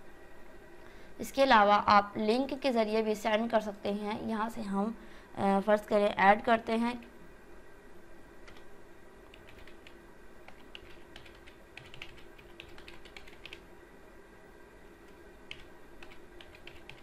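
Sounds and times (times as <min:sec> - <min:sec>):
faint steady hum: 0:00.0 - 0:17.0
keyboard typing clicks: 0:09.3 - 0:13.6, 0:15.1 - 0:17.0.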